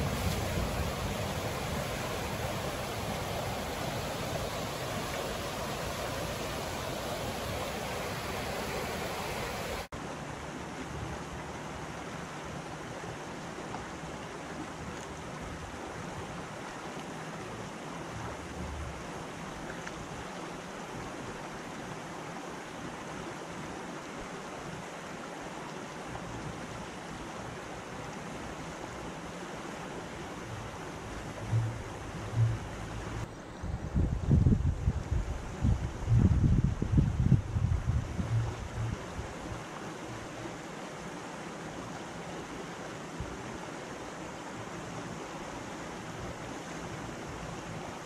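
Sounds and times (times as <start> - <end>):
wind gusts on microphone: 0.0 - 9.9, 30.5 - 39.7
creek water rushing over rocks: 0.0 - 48.0.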